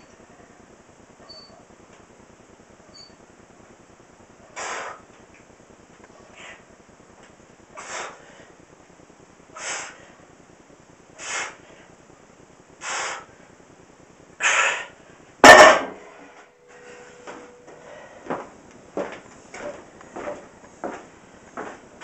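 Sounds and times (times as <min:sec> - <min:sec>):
forceful breaths: 0:07.8 - 0:08.6
barbell clanging on wooden floor: 0:15.4 - 0:16.1.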